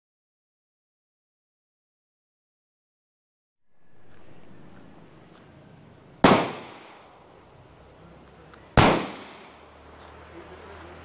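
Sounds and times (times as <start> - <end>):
gunshots with echo: 6.2 - 7.2, 8.8 - 9.7.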